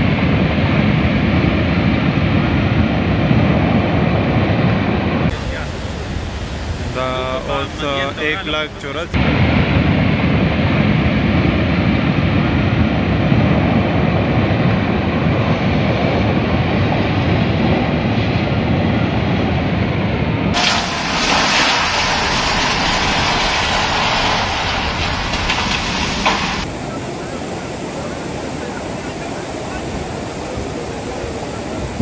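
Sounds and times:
floodwater rushing: 0:05.3 - 0:09.2, 0:20.6 - 0:26.8.

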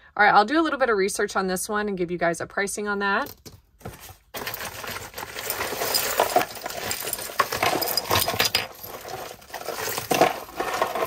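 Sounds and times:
metal jewelry clinking: 0:04.4 - 0:11.0.

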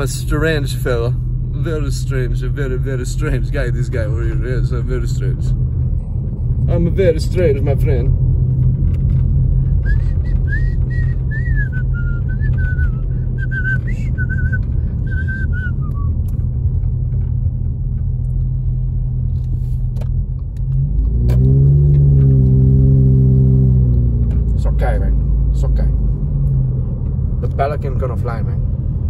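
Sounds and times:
car engine and road rumble: 0:00.0 - 0:29.0
deep drone: 0:04.3 - 0:19.7
person whistling a tune: 0:09.8 - 0:16.2.

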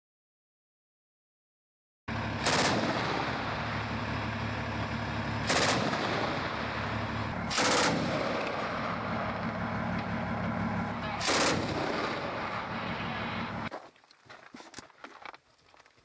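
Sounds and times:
vehicle engine hum: 0:02.1 - 0:13.7
automatic gunfire bursts: 0:02.4 - 0:03.4, 0:05.4 - 0:06.6, 0:07.5 - 0:08.4, 0:11.2 - 0:12.6.

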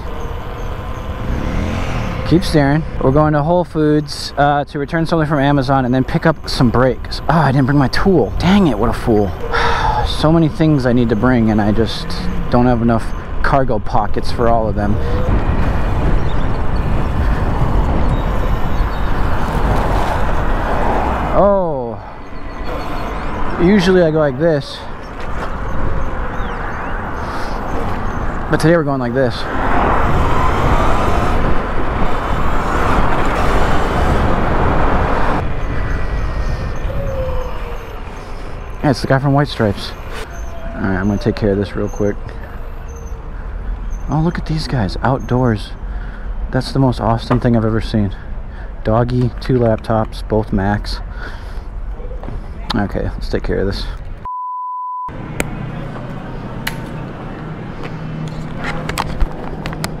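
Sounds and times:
passing traffic: 0:00.0 - 0:54.3, 0:55.1 - 1:00.0
wind rushing over microphone: 0:08.0 - 0:21.4, 0:22.1 - 0:42.3
test tone beep: 0:54.3 - 0:55.1.

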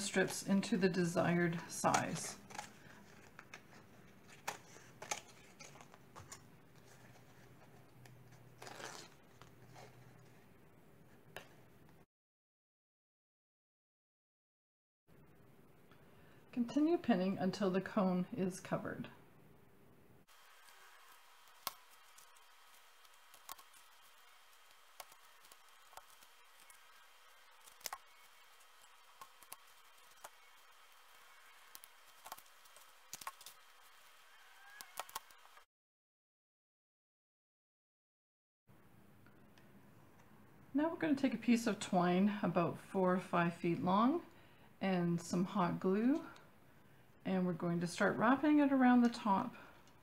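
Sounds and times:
husk tearing: 0:08.6 - 0:09.5, 0:20.4 - 0:34.0.

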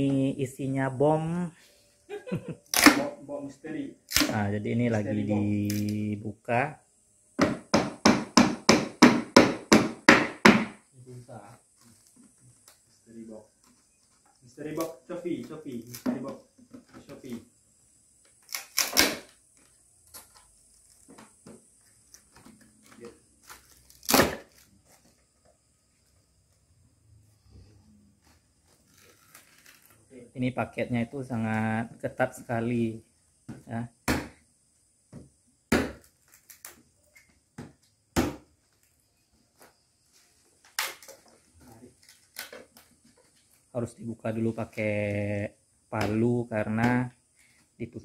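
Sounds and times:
loud crack of wood: 0:02.7 - 0:03.1, 0:04.1 - 0:04.4, 0:18.4 - 0:19.4, 0:22.3 - 0:24.7, 0:35.7 - 0:36.8, 0:40.6 - 0:41.4, 0:42.0 - 0:42.9
wooden slats knocking and creaking: 0:07.4 - 0:10.8.

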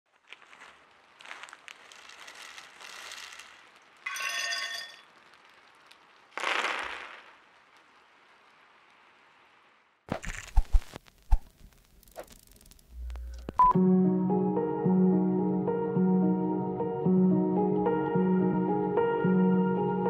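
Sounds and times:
ringing clinking crash: 0:04.0 - 0:05.1
sharp clicks and low thumps: 0:10.1 - 0:13.8.

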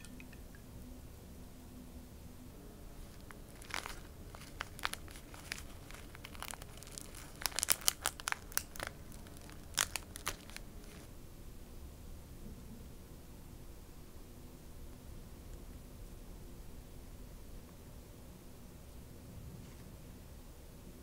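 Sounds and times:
plastic packet crinkling: 0:03.1 - 0:11.1.

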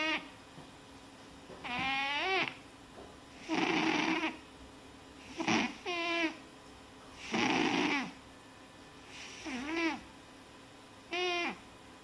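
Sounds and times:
cat snoring: 0:01.7 - 0:02.5, 0:03.4 - 0:04.4, 0:05.2 - 0:06.4, 0:07.2 - 0:08.2, 0:09.1 - 0:10.0, 0:11.1 - 0:11.6.

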